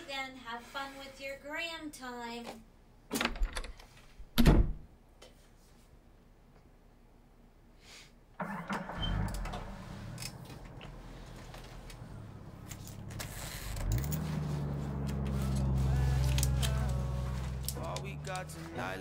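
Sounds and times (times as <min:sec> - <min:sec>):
car engine starting and revving: 0:08.4 - 0:19.0.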